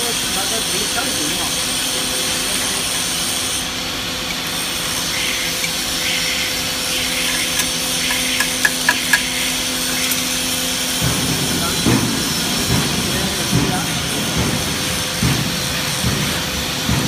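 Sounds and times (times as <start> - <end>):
machinery hum and hiss: 0.0 - 17.0
spanner clicking on metal: 6.9 - 10.2.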